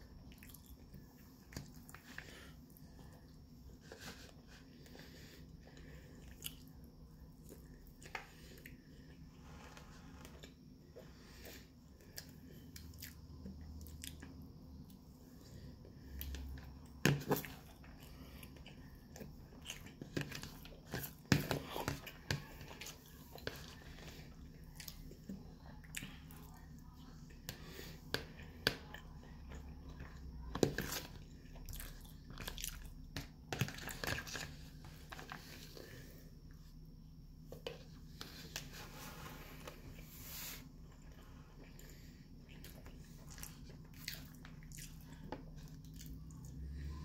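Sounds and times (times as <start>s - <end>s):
chewing with wet mouth sounds: 0.1s - 36.6s, 40.8s - 46.9s.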